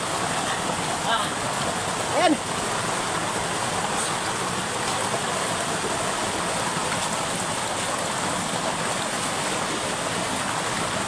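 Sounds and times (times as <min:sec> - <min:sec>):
water gushing and rushing: 0:00.0 - 0:11.0.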